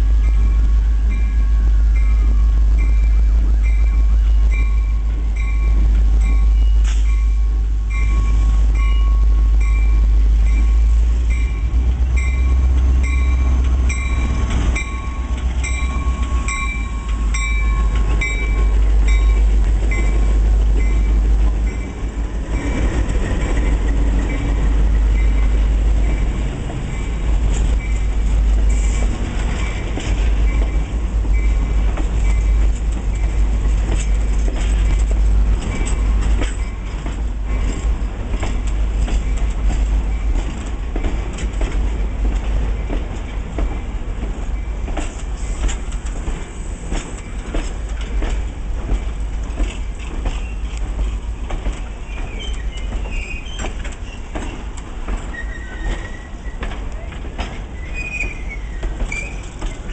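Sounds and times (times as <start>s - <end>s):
locomotive engine rumbling: 0.0s - 59.9s
locomotive bell ringing: 0.2s - 23.0s
train wheels clicking over rail joints: 0.2s - 59.9s.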